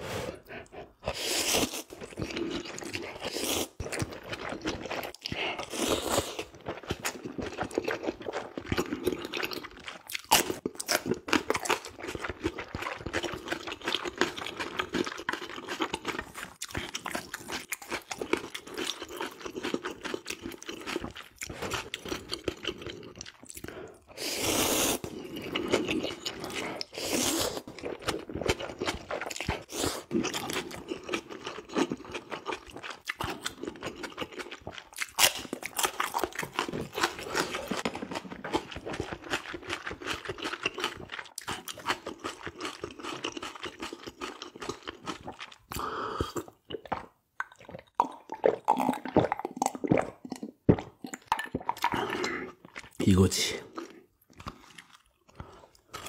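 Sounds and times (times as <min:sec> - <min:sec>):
man slurping noodles: 0:00.0 - 0:01.9, 0:24.0 - 0:25.8
wet chewing and crunching: 0:00.6 - 0:56.0.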